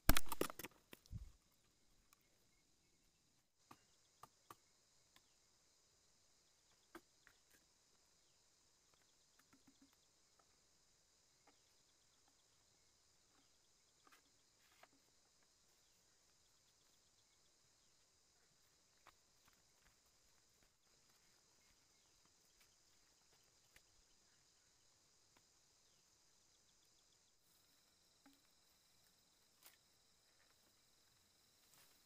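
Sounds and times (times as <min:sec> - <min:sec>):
bamboo pieces clicking: 0:00.0 - 0:01.3
insect chirring: 0:00.0 - 0:32.0.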